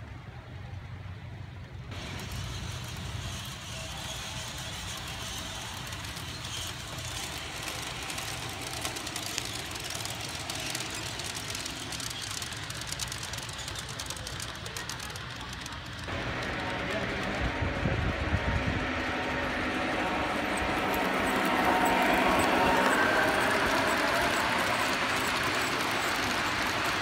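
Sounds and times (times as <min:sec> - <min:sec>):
model train rumbling: 0:00.0 - 0:27.0
light rapid clicking: 0:02.2 - 0:17.3.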